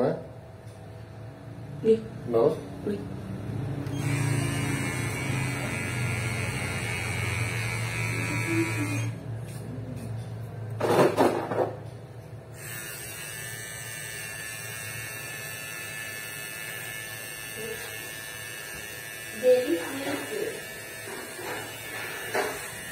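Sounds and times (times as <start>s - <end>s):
hair clipper buzzing: 3.8s - 9.2s, 12.5s - 22.9s.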